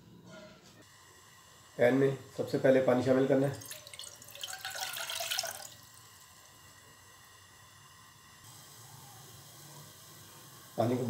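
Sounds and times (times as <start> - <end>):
water pouring into saucepan: 3.5 - 6.0.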